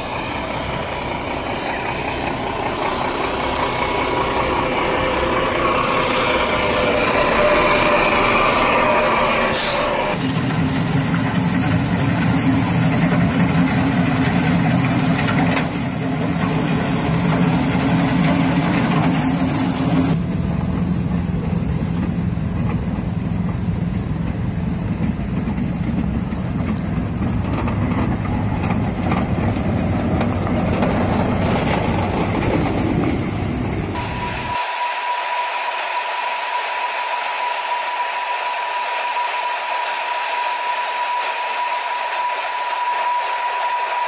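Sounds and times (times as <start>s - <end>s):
truck engines humming: 0.0s - 34.8s.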